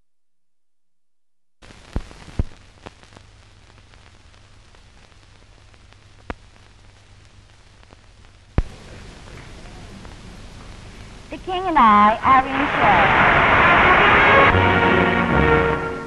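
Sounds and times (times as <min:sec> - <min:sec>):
steady film hiss: 0:01.6 - 0:16.0
low hum: 0:12.1 - 0:16.0.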